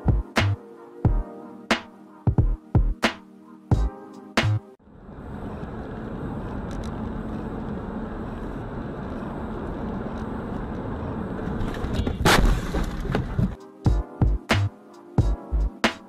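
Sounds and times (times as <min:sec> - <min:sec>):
car collision bang: 0:12.1 - 0:13.5.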